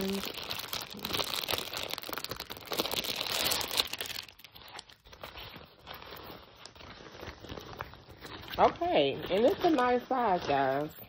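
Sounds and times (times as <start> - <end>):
fabric bag rustling: 0.0 - 11.0
packaging crinkling and tearing: 0.0 - 11.0.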